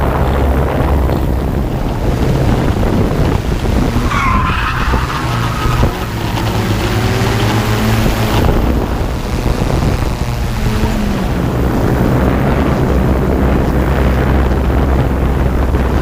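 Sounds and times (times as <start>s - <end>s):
car engine noise: 0.0s - 16.0s
drone motors and propellers humming: 0.0s - 16.0s
car tires squealing: 3.0s - 8.4s.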